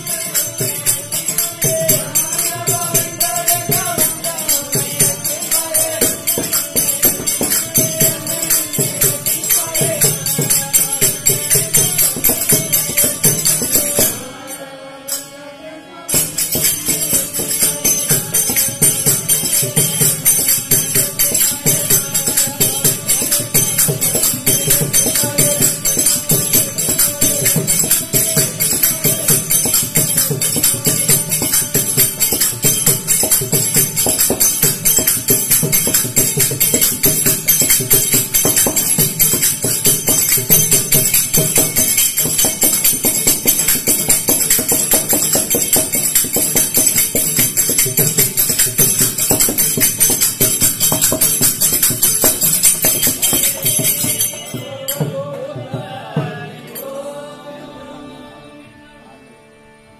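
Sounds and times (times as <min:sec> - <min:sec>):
devotional group singing: 0:00.0 - 0:48.2, 0:52.2 - 0:59.7
small metal hand cymbals: 0:16.1 - 0:55.4.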